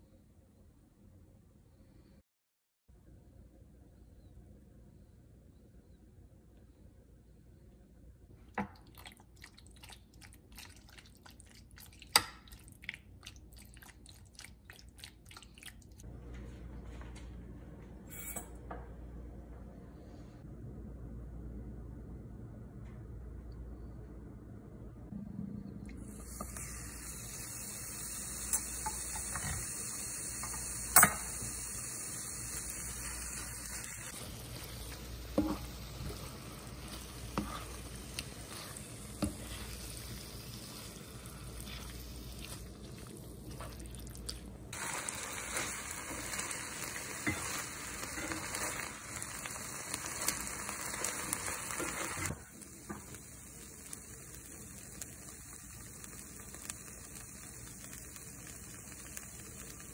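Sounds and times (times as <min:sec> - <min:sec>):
chicken sizzling in hot oil: 0:26.0 - 0:43.4, 0:44.7 - 0:59.9.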